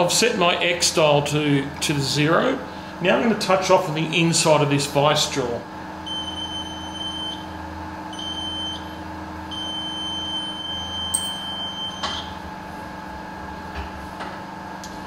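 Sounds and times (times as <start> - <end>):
steady low hum: 0.0 - 15.0
buzzer beeping: 8.2 - 8.9, 9.5 - 12.3.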